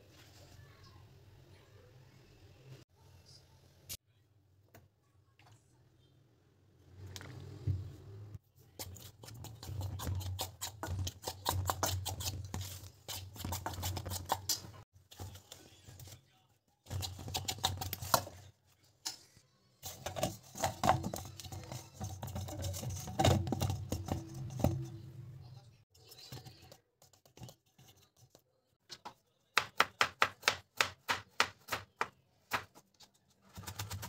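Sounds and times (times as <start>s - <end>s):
kneading dough in a steel bowl: 7.0s - 29.8s.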